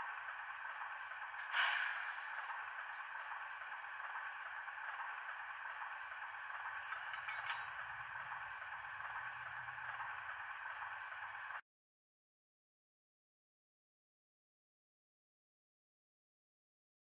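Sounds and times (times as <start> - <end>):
model diesel engine idle sound: 0.0 - 11.6.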